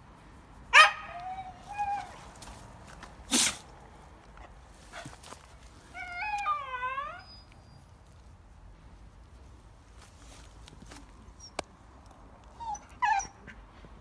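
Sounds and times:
dog whining: 6.0s - 7.8s.

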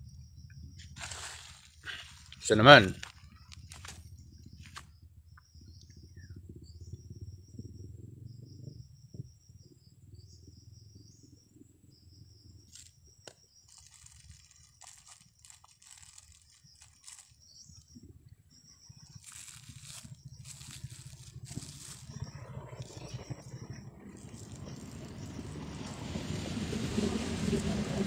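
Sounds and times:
crickets trilling: 0.0s - 28.0s
plastic bag crinkling: 1.0s - 4.0s, 12.7s - 12.9s, 13.7s - 17.4s, 19.2s - 23.2s, 24.1s - 25.6s.

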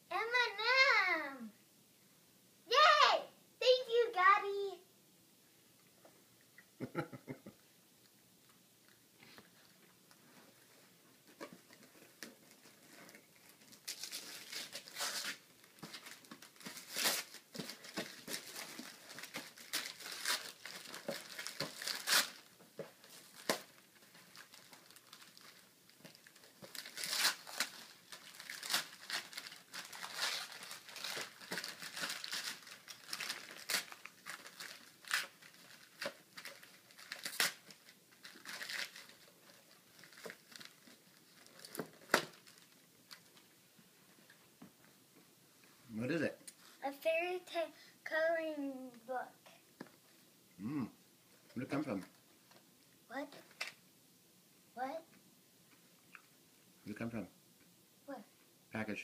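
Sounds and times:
wrapping paper tearing and crumpling: 12.0s - 43.4s.

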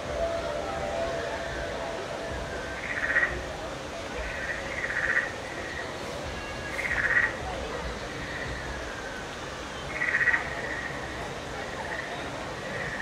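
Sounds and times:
high pulsed frog-like trills: 0.0s - 3.5s, 4.2s - 5.9s, 6.8s - 7.4s, 9.9s - 11.1s
background hiss: 0.0s - 13.0s.

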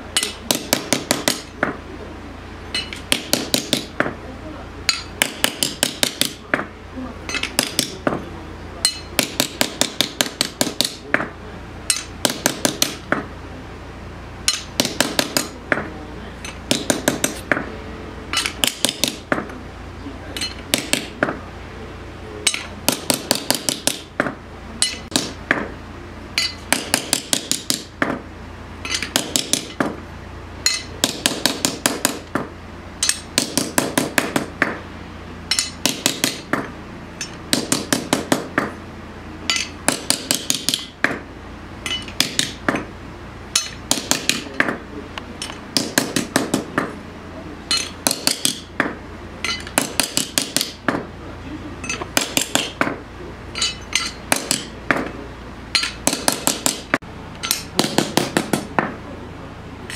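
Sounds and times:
hammer striking steel blade: 0.2s - 1.7s, 2.7s - 4.1s, 4.9s - 6.7s, 7.3s - 8.2s, 8.8s - 11.3s, 11.9s - 13.2s, 14.5s - 15.8s, 18.3s - 19.5s, 22.4s - 25.7s, 26.4s - 28.2s, 28.8s - 29.9s, 30.6s - 32.4s, 33.0s - 34.8s, 35.5s - 38.7s, 39.5s - 41.2s, 41.8s - 42.9s, 43.6s - 44.8s, 47.7s - 51.0s, 51.8s - 55.1s, 55.7s - 58.9s.

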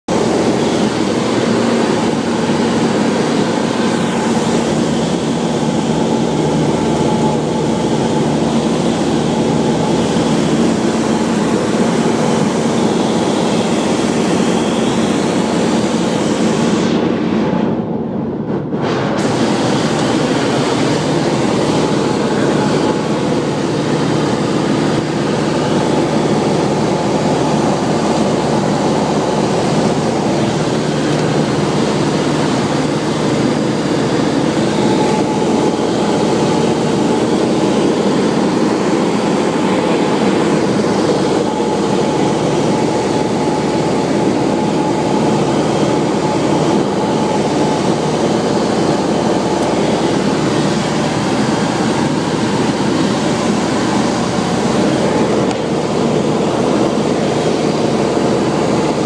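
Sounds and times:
aircraft engine and propeller drone: 0.1s - 59.0s
rushing airflow: 0.1s - 59.0s.

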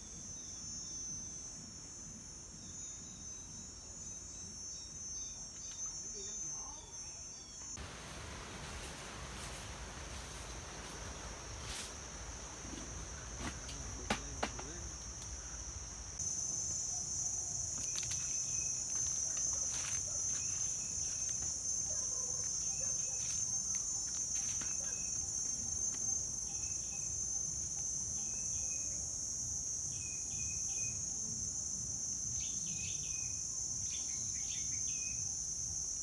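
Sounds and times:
insects shrilling: 2.6s - 31.1s.

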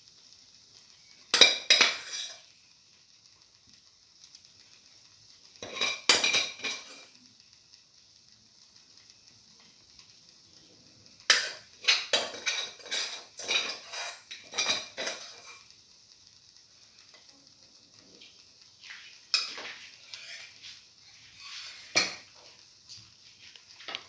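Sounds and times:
spoon scraping a metal pan: 1.3s - 2.4s, 5.6s - 7.1s, 11.3s - 15.6s, 18.8s - 22.3s.

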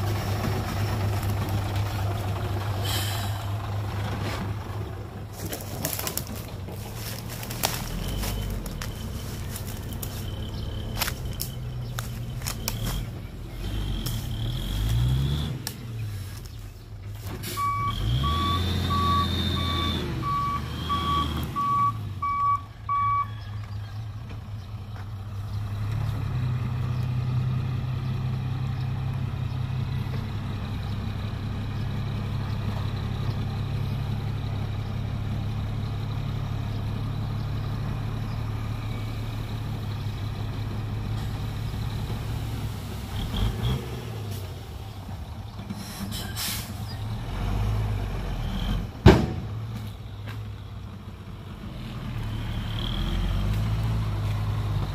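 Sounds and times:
truck tipper bed dumping soil: 0.0s - 22.1s, 40.5s - 50.5s
diesel truck engine revving: 0.0s - 54.9s
reversing alarm beeping: 17.6s - 23.5s.

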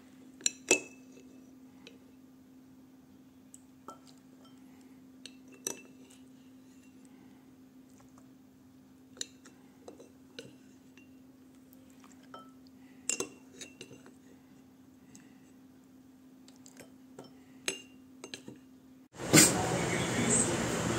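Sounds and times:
faint steady hum: 0.0s - 20.9s
spoon clinking against ceramic: 0.4s - 1.4s, 3.9s - 7.0s, 12.2s - 14.1s, 16.8s - 18.7s.

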